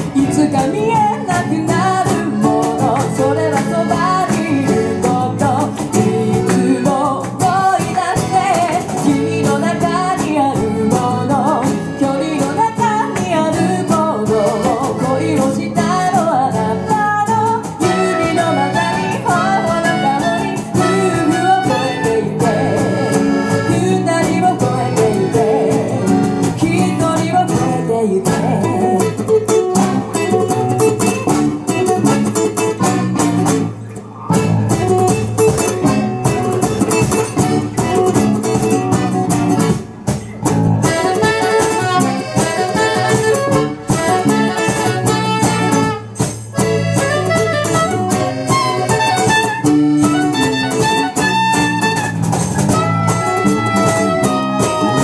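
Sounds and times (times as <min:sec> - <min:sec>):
woman singing: 0:00.0 - 0:30.5, 0:40.9 - 0:46.0
accordion: 0:00.0 - 0:55.0
acoustic guitar: 0:00.0 - 0:55.0
electric bass: 0:00.0 - 0:55.0
saxophone: 0:16.6 - 0:26.5, 0:40.8 - 0:55.0.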